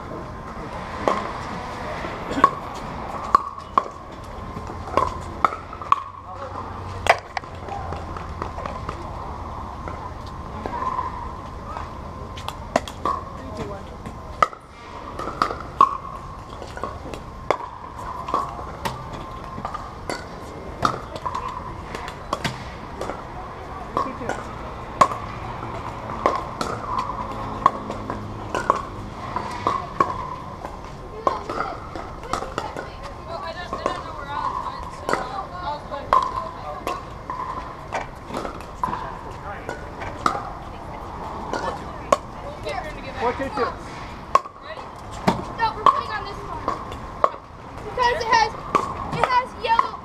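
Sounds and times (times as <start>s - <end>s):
paddles striking plastic balls: 14.1s - 23.3s, 23.9s - 32.9s, 33.6s - 40.6s.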